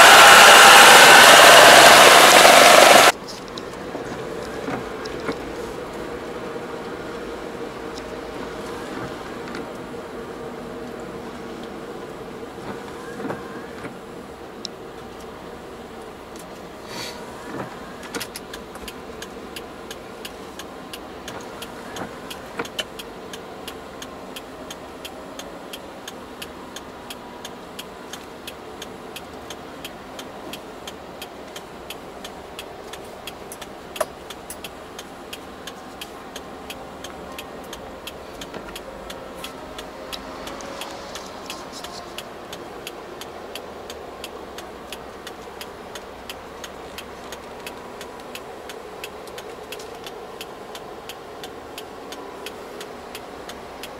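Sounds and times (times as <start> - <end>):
car road and engine noise: 0.0 - 53.9
light even ticking: 17.6 - 53.9.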